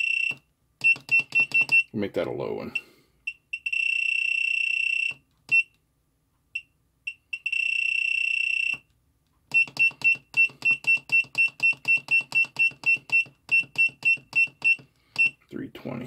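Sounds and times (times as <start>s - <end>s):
long electronic beep: 0.0s - 1.9s
short electronic beeps: 0.0s - 1.9s, 6.6s - 8.9s, 9.5s - 15.4s.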